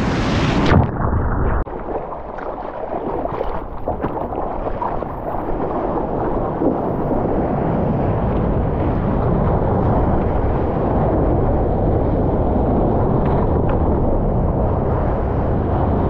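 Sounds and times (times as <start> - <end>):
muffled underwater wave wash: 0.0 - 16.0
water sloshing against camera: 1.7 - 7.2.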